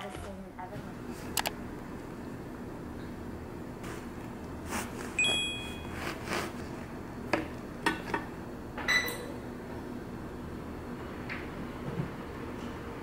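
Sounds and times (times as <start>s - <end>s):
bright ringing ping: 5.2s - 5.9s
knife sawing through bread: 5.9s - 6.8s.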